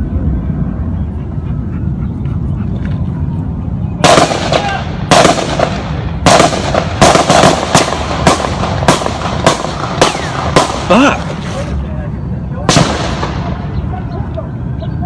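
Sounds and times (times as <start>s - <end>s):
gunshots with echo: 4.0s - 11.2s, 12.7s - 13.8s.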